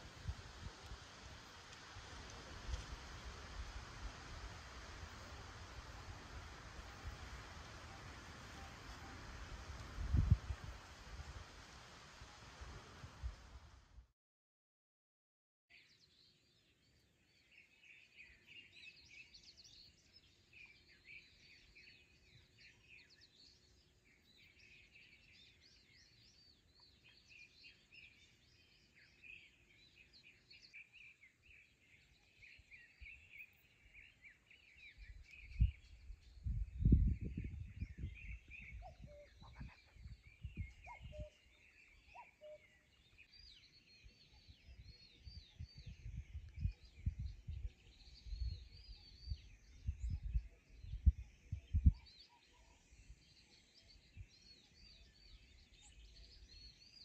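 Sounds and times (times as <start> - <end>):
wind buffeting microphone: 0.0 - 1.4, 2.0 - 13.6, 35.0 - 41.3, 44.6 - 52.0
small birds chirping: 15.7 - 57.0.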